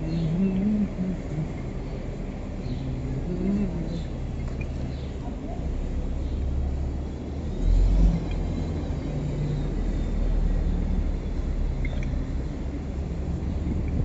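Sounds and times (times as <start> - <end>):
road traffic rumble: 0.0 - 14.0
wind on microphone: 13.2 - 14.0.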